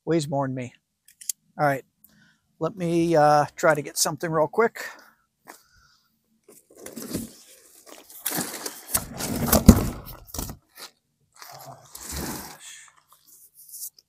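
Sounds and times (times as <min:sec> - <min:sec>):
cardboard being handled: 0:06.5 - 0:10.9.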